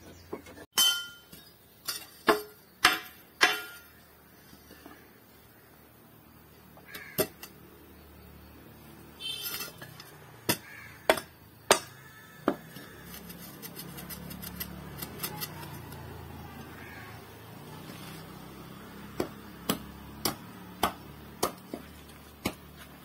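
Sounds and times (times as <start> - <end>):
metal hoe blade knocking: 0.8 - 4.0, 9.2 - 16.8.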